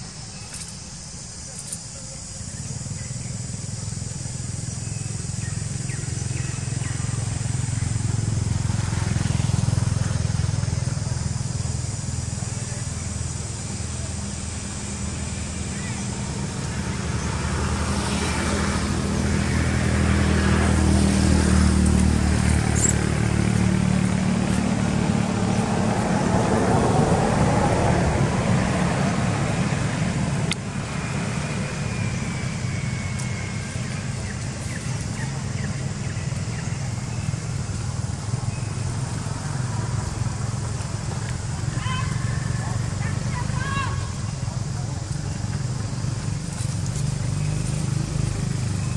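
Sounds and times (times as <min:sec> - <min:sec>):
vehicle engine running: 0:00.0 - 0:48.9.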